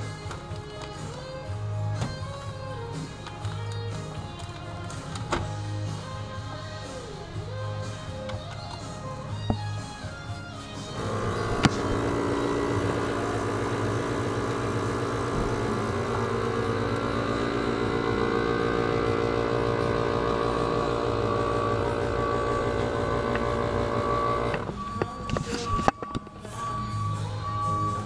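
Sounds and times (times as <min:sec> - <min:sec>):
motor running steadily: 0:09.3 - 0:25.8.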